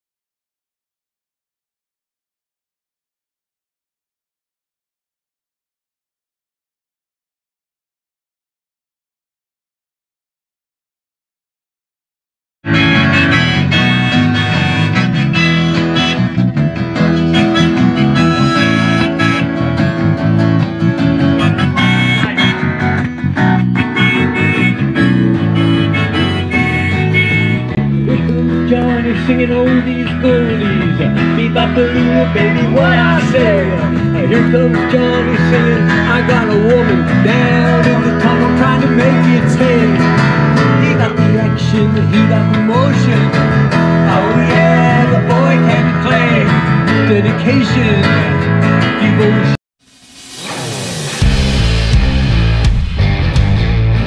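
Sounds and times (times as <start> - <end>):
electric guitar: 12.6 - 54.0
wavering lead melody: 12.7 - 29.1
acoustic guitar: 12.7 - 49.6.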